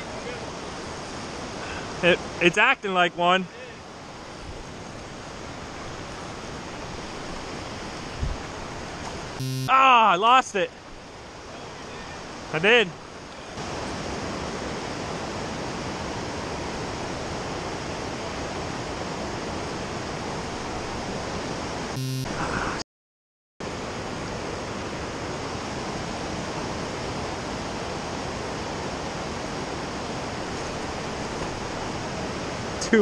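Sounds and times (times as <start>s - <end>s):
tonal sound effect: 9.4s - 9.7s.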